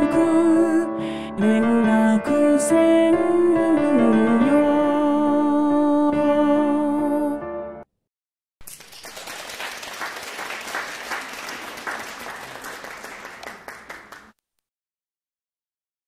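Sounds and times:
audience applause: 8.6 - 14.4.

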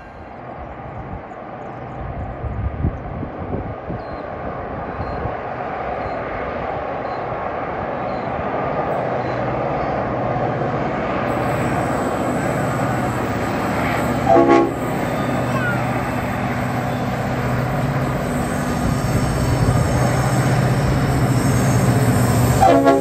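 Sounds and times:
locomotive engine drone: 0.0 - 23.0.

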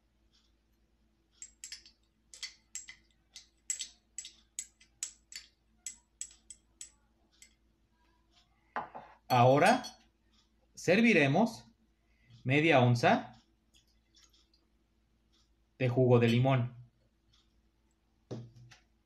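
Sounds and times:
metal measure tapping glass rim: 1.4 - 3.0.

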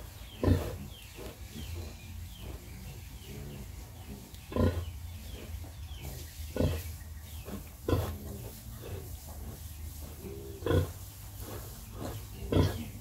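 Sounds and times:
pig grunting: 0.4 - 1.0, 4.5 - 5.6, 6.5 - 9.2, 10.2 - 13.0.

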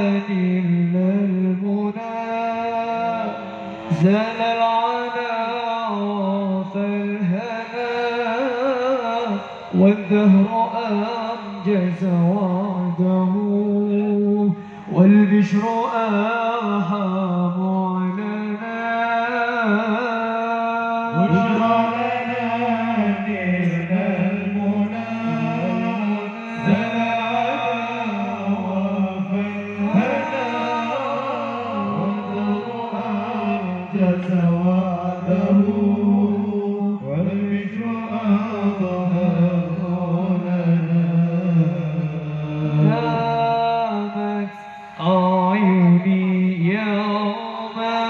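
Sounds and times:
men singing into microphones: 0.0 - 48.0
low sustained drone note: 21.2 - 36.8.

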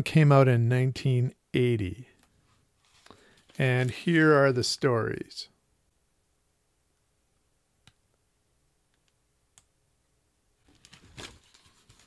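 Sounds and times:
book rustling and closing: 10.6 - 12.0.

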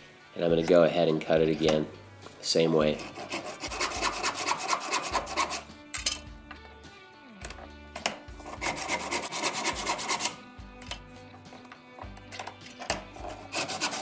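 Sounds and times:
handsaw cutting wood: 2.9 - 5.7, 8.4 - 10.4, 13.2 - 14.0.

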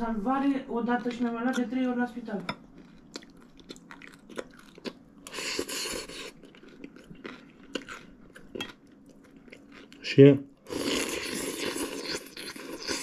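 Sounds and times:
crunching chewing: 2.6 - 13.0
wet chewing clicks: 2.7 - 10.0.

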